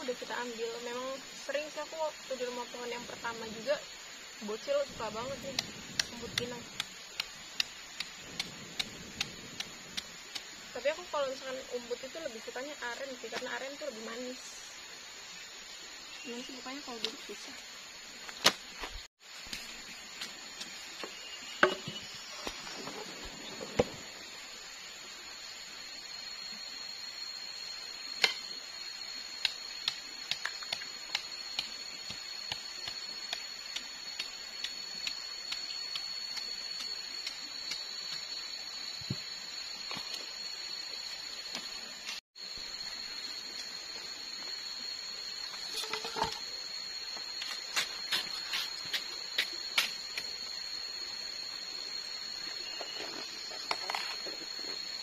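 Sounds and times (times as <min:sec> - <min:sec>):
high-pitched insect drone: 0:00.0 - 0:55.0
sharp ticks: 0:05.3 - 0:10.5
machete chopping palm trunk: 0:18.4 - 0:18.9.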